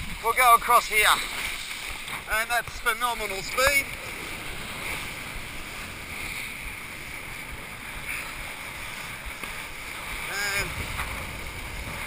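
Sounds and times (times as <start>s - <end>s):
water rushing under kiteboard: 0.0s - 12.0s.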